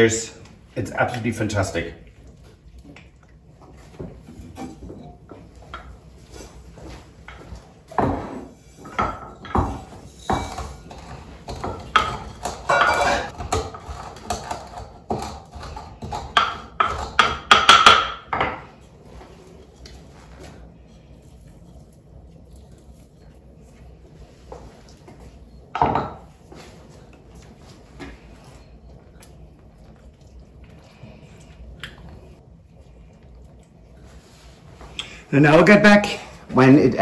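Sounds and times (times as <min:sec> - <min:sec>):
spoon and pans clattering: 0:08.0 - 0:18.7
pestle grinding seeds in mortar: 0:08.2 - 0:18.2.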